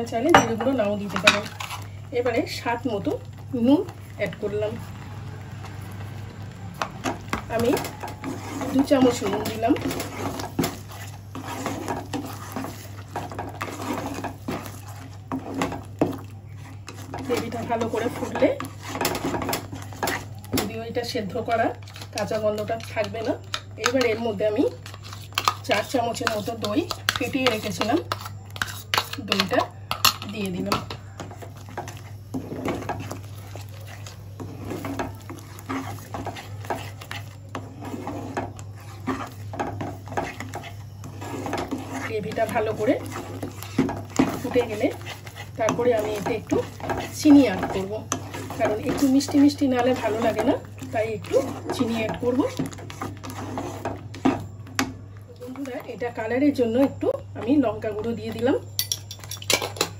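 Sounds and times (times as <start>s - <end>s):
spatula scraping a pan: 0.0s - 5.0s, 6.5s - 59.9s.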